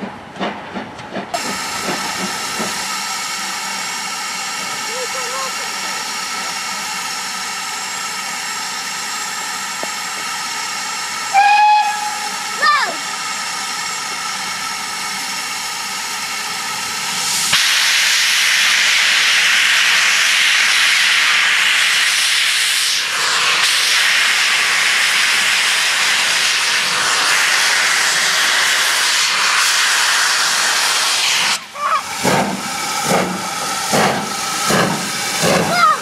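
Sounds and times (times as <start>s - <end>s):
steam engine exhaust beats: 0.0s - 36.0s
continuous hiss of steam: 1.2s - 36.0s
steam locomotive whistle: 11.3s - 12.5s.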